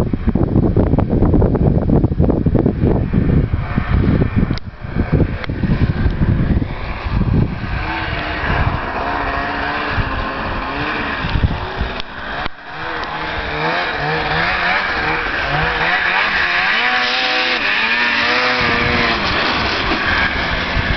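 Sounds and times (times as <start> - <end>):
wind buffeting microphone: 0.0 - 20.9
snowmobile engine revving: 2.6 - 20.9.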